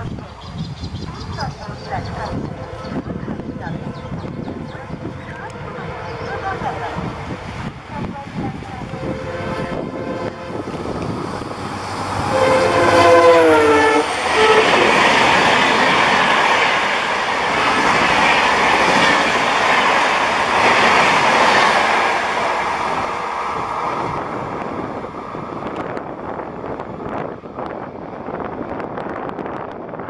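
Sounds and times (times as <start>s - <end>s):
train wheels rushing on rails: 0.0s - 30.0s
diesel locomotive horn: 2.2s - 7.2s, 8.7s - 11.0s, 12.0s - 15.1s.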